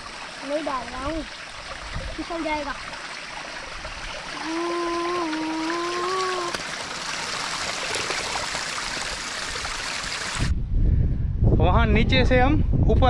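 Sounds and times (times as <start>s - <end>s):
water trickling over rocks: 0.0s - 10.5s
voice holding a drawn-out note: 4.4s - 6.6s.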